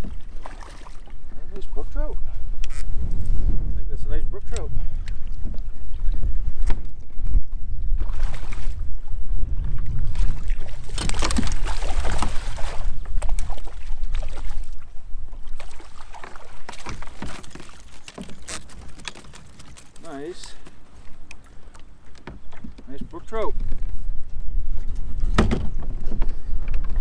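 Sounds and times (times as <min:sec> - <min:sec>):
fish splashing in water: 0:00.0 - 0:01.1, 0:10.2 - 0:14.8
wind buffeting microphone: 0:00.0 - 0:16.6, 0:22.3 - 0:27.0.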